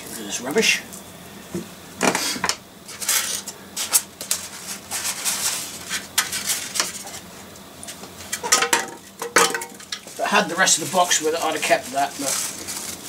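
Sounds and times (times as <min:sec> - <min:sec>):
packaging crinkling and rustling: 0:09.0 - 0:13.0.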